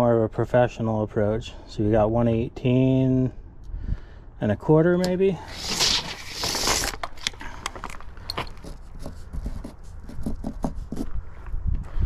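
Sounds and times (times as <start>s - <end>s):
writing on plastic wrap: 8.6s - 11.1s
wind rumble on microphone: 10.1s - 12.0s.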